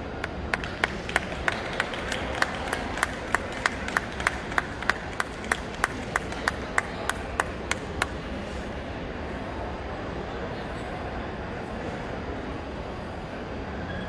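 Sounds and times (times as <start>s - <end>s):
crowd noise: 0.0s - 14.0s
rhythmic hand clapping: 0.1s - 8.4s.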